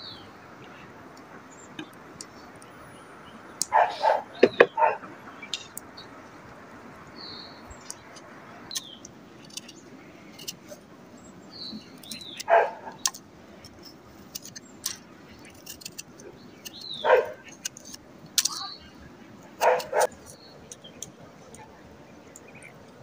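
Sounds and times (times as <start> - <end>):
dog barking loudly: 3.7 - 5.1, 12.5 - 13.0, 17.0 - 17.4, 19.6 - 20.1.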